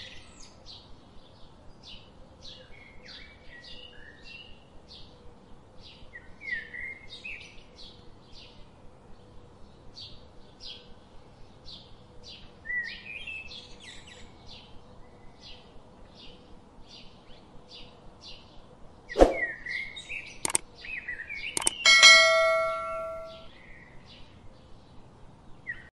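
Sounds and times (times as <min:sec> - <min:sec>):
bird chirping: 0:11.7 - 0:23.5
bell chime: 0:21.6 - 0:23.5.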